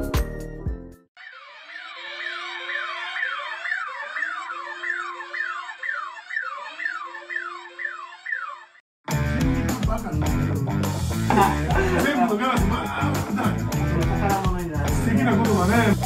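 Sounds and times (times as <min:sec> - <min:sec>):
siren wails: 0:01.2 - 0:08.8.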